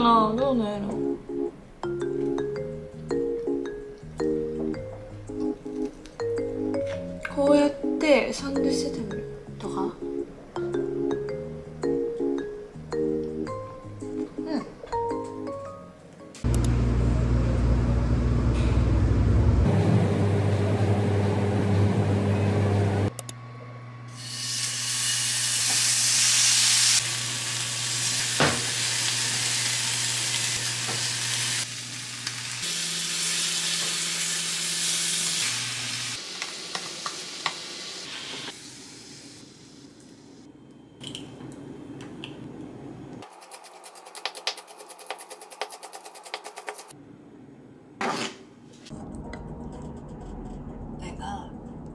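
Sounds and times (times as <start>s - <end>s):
loud low hum: 16.5s - 24.2s, 49.0s - 51.9s
beef sizzling in a pan: 24.2s - 39.8s.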